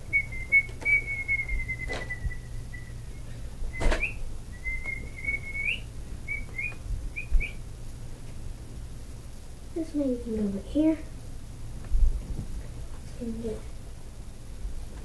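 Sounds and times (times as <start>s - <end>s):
person whistling high note: 0.2s - 7.6s.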